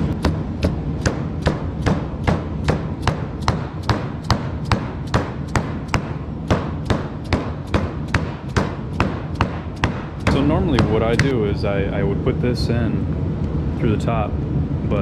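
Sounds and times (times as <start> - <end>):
hammer tapping: 0.0 - 11.6
low hum: 0.0 - 15.0.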